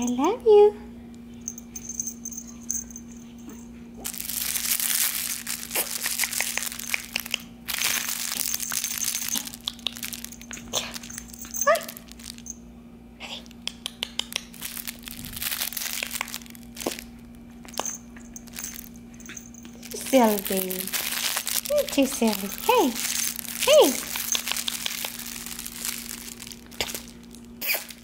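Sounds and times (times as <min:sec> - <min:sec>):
rustling and crinkling: 0:01.2 - 0:12.6, 0:14.4 - 0:28.0
puppy squeak: 0:27.6 - 0:28.0.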